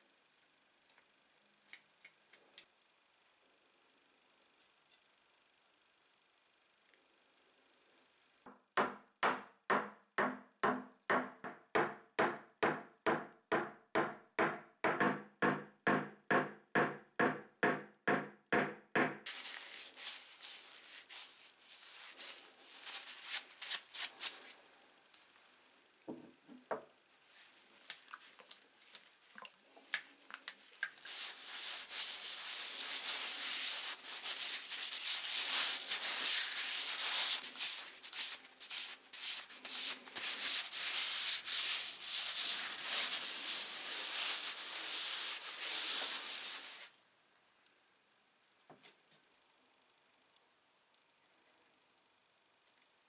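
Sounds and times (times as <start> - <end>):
hand rubbing wooden handle: 19.3 - 24.6, 30.8 - 46.9.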